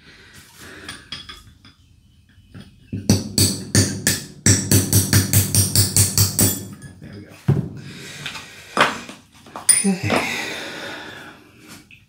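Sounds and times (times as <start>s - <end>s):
hammer striking metal punch: 2.9s - 7.0s.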